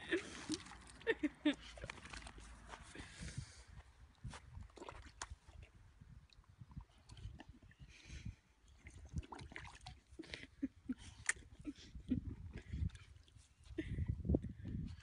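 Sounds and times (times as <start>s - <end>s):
dog splashing in water: 0.2s - 2.6s.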